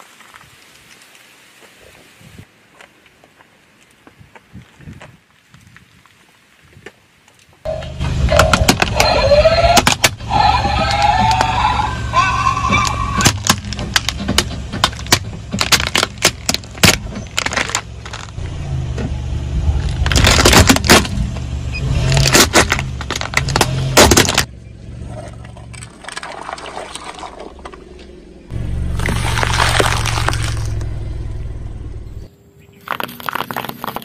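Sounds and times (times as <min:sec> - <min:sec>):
low rumble of car: 0:07.7 - 0:33.0
plastic toy cracking and snapping: 0:13.2 - 0:18.4, 0:20.0 - 0:21.1, 0:22.2 - 0:24.5.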